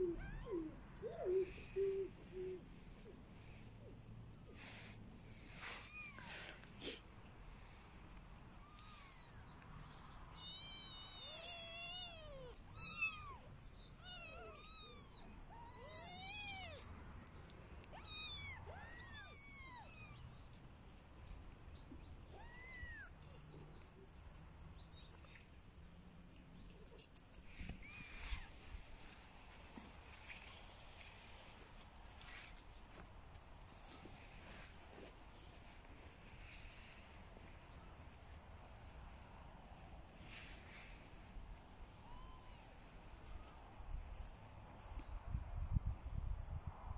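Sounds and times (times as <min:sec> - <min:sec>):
kittens mewing: 0:05.6 - 0:07.1, 0:08.6 - 0:09.4, 0:10.4 - 0:16.8, 0:17.9 - 0:20.2, 0:22.2 - 0:23.2, 0:26.9 - 0:28.6.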